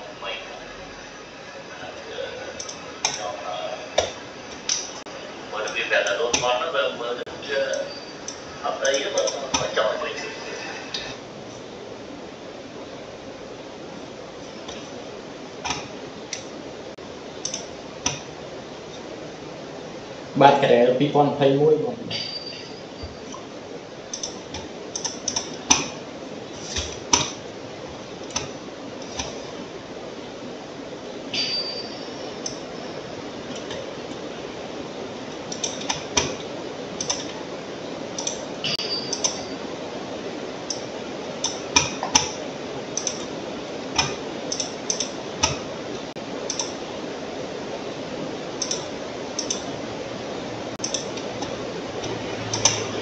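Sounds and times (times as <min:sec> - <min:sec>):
steady background hiss: 0:00.0 - 0:53.0
computer keyboard and mouse clicks: 0:17.4 - 0:18.3, 0:24.1 - 0:26.0, 0:37.0 - 0:37.4, 0:43.0 - 0:43.3, 0:46.5 - 0:46.8, 0:48.6 - 0:49.6.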